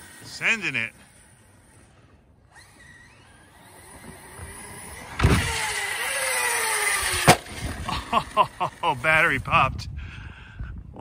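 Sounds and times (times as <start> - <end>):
electric motor whine: 0.0 - 9.6
tyre noise: 2.5 - 9.2
toy truck landing thump: 3.9 - 6.1, 6.8 - 7.8.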